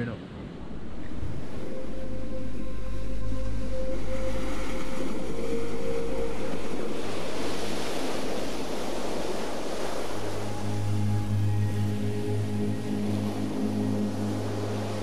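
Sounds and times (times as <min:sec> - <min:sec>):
wind rumbling on microphone: 0:00.0 - 0:15.0
surf washing up pebble beach: 0:04.1 - 0:11.0.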